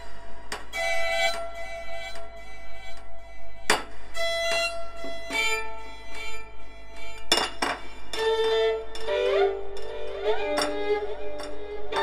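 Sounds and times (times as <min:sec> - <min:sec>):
violin melody: 0:00.7 - 0:07.3, 0:07.9 - 0:12.0.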